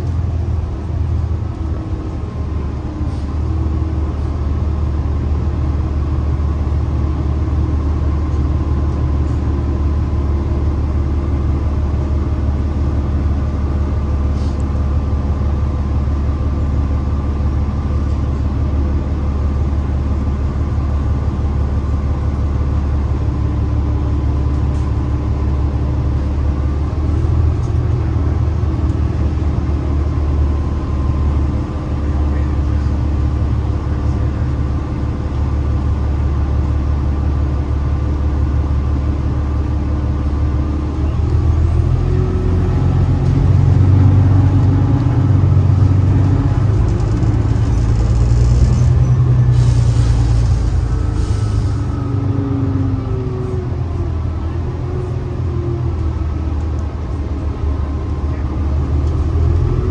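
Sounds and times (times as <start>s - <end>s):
bus engine drone: 0.0s - 59.9s.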